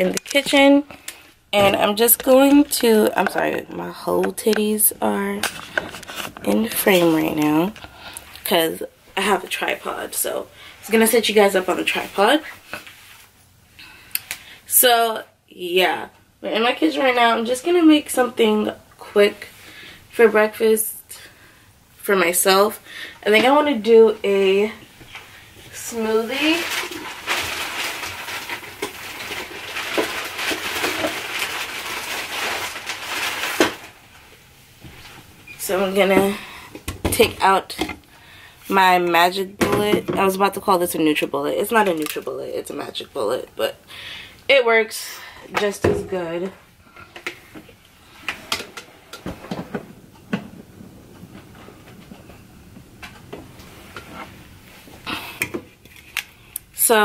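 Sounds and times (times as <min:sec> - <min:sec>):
rustling of things on shelf: 0:00.0 - 0:08.6, 0:23.3 - 0:38.1, 0:45.5 - 0:56.5.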